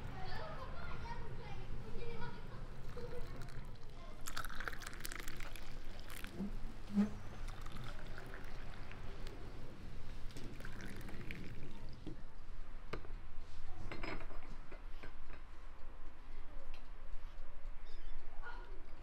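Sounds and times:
milk pouring into cups: 0:02.8 - 0:12.0.

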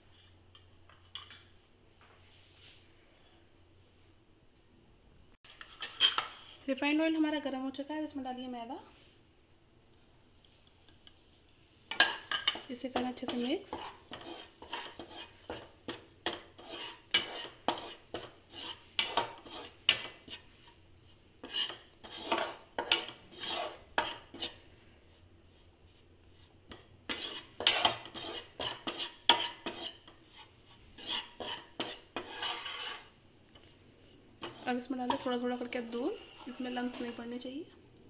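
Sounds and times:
metal ladle scraping a pan: 0:05.5 - 0:06.6, 0:11.9 - 0:24.6, 0:25.5 - 0:37.5.

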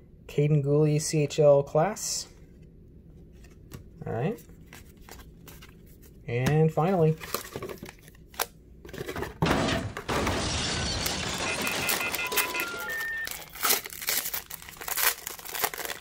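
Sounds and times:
foil wrapper crinkling and tearing: 0:11.7 - 0:16.0.

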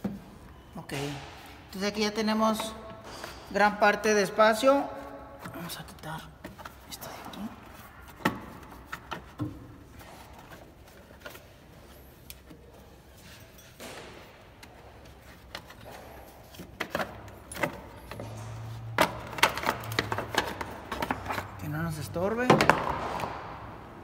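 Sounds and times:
clicks and rattles of car parts: 0:13.6 - 0:24.0.

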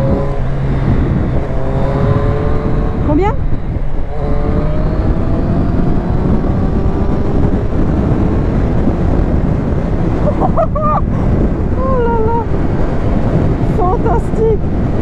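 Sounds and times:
motorcycle engine accelerating: 0:00.0 - 0:15.0
wind noise on microphone: 0:00.0 - 0:15.0.

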